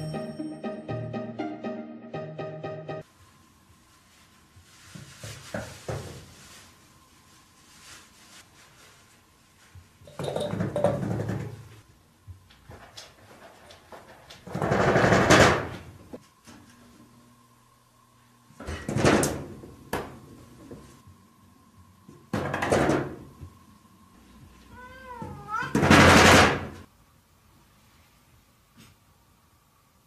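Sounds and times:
sliding door rattling and scraping: 14.4 - 15.9.

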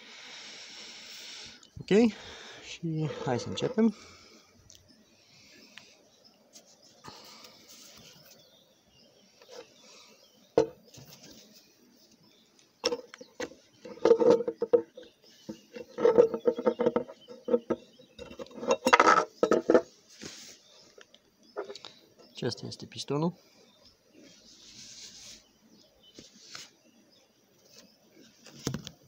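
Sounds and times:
metal clattering on wood: 12.8 - 19.9.

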